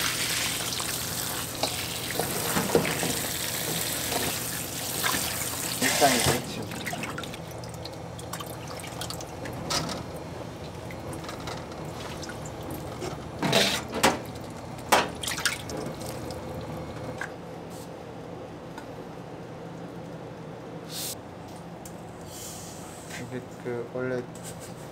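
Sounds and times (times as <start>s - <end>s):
water sloshing and dripping: 4.1s - 9.8s, 10.6s - 16.6s
water splashes: 15.2s - 16.4s.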